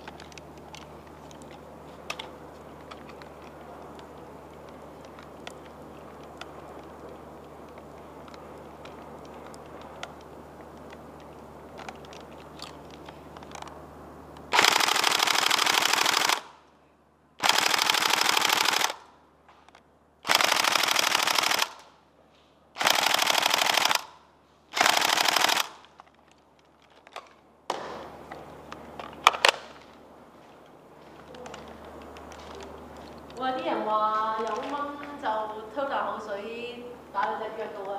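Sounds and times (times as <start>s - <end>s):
faint low hum with ticks: 0.0s - 27.6s, 28.2s - 37.9s
airsoft gun full-auto bursts: 14.5s - 16.6s, 17.4s - 19.1s, 20.2s - 22.0s, 22.8s - 26.0s.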